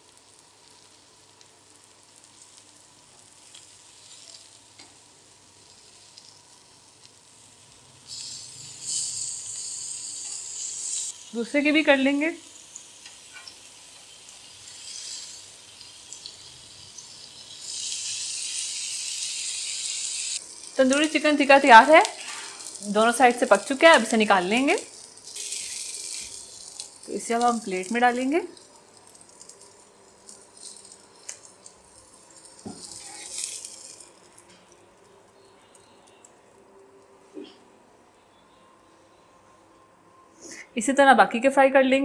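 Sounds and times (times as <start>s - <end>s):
chicken sizzling on a grill pan: 0.0s - 34.5s
scraping hiss: 7.9s - 11.4s, 12.5s - 20.8s, 22.0s - 23.1s, 29.6s - 34.6s.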